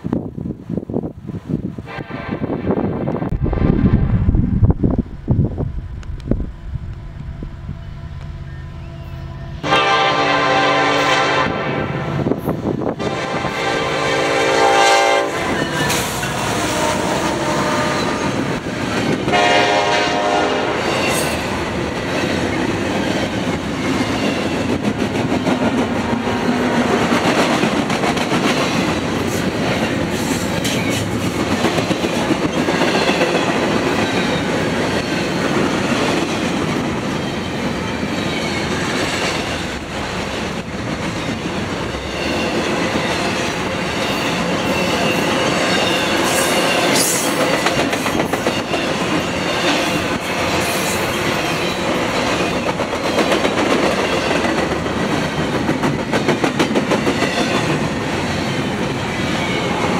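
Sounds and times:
locomotive air horn blasts: 0:07.7 - 0:12.3, 0:13.0 - 0:15.8, 0:16.4 - 0:18.3, 0:19.3 - 0:21.1
train wheels clickety-clack: 0:15.2 - 0:59.9.

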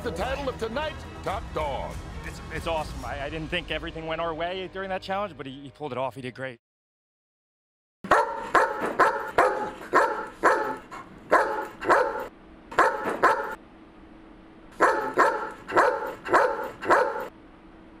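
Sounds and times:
dog barking: 0:08.0 - 0:13.6, 0:14.8 - 0:17.3.

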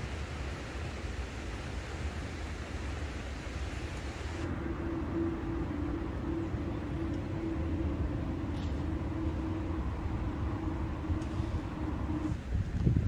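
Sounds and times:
low mechanical rumble: 0:04.4 - 0:13.0.

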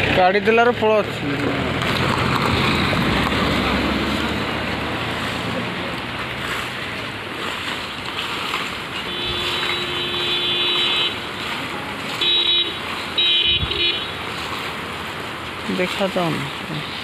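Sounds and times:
vehicle horn honking: 0:09.0 - 0:14.2.

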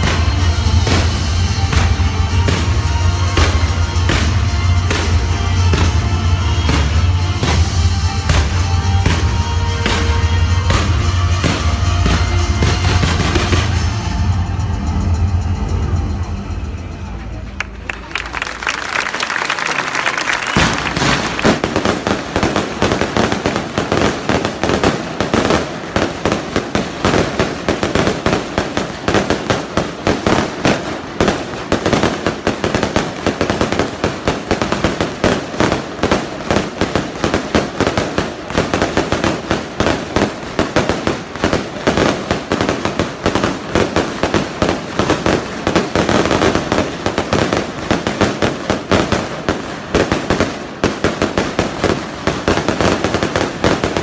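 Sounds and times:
firework shells bursting: 0:19.7 - 0:54.0.

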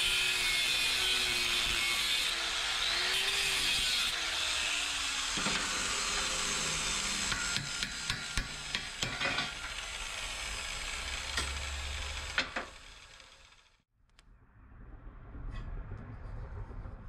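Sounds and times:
hammer striking metal pipe: 0:07.3 - 0:09.8.

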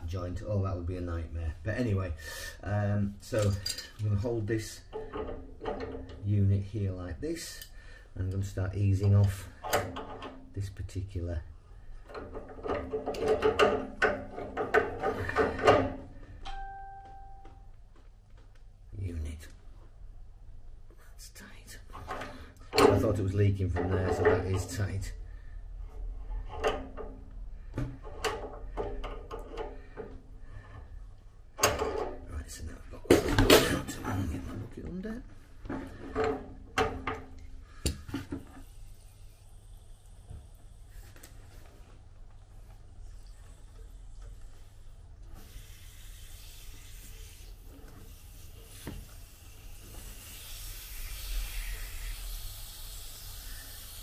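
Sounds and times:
water hissing and trickling: 0:38.6 - 0:41.2, 0:43.0 - 0:54.0
towel rubbing on fitting: 0:42.7 - 0:54.0.

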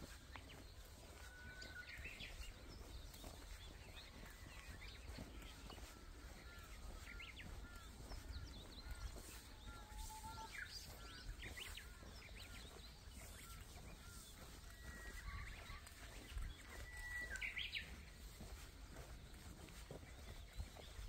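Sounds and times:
small birds chirping: 0:00.0 - 0:21.0
bird whistling: 0:16.8 - 0:17.8.

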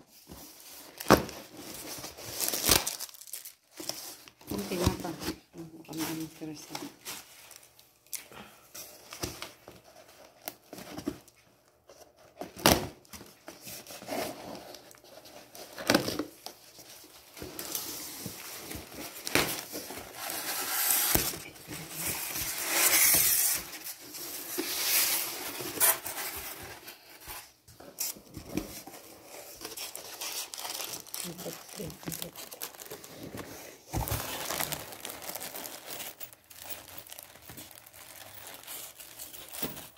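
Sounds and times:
plastic wrap crinkling: 0:00.8 - 0:05.2, 0:29.0 - 0:39.9
cardboard packing knocks: 0:33.9 - 0:34.8.

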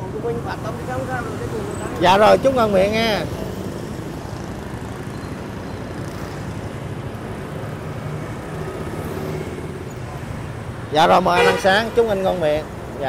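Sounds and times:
road traffic noise: 0:00.0 - 0:13.0.

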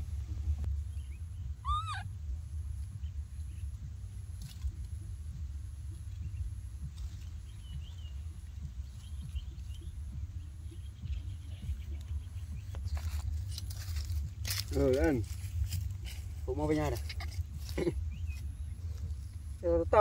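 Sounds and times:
steady low rumble: 0:00.0 - 0:20.0
faint high chirps: 0:00.9 - 0:02.1
short squealing animal call: 0:01.6 - 0:02.0.

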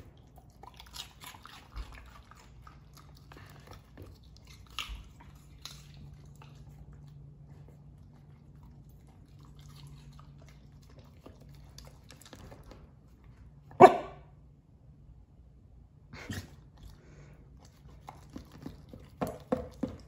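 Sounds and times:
dog barking: 0:13.7 - 0:14.3.

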